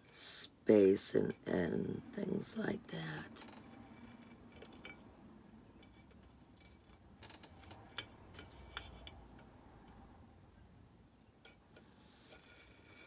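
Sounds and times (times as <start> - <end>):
craft knife ticks and scrapes: 3.3 - 10.1, 11.4 - 13.0.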